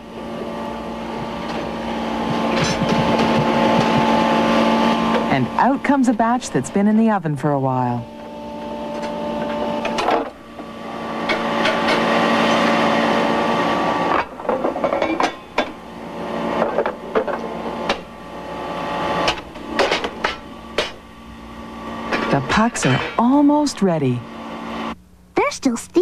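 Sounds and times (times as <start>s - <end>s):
machine hum: 0.0s - 26.0s
metallic clanks and knocks: 2.3s - 4.2s.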